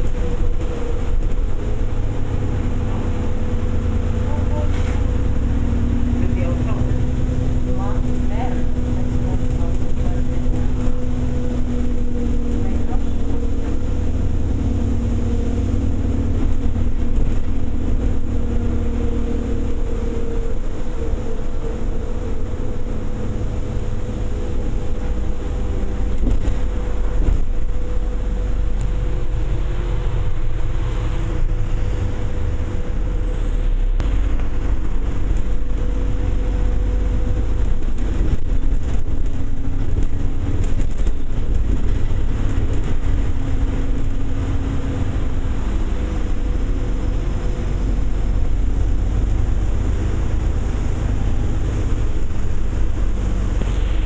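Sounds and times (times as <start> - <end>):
bus engine and road rumble: 0.0 - 54.0
drivetrain whine: 0.0 - 54.0.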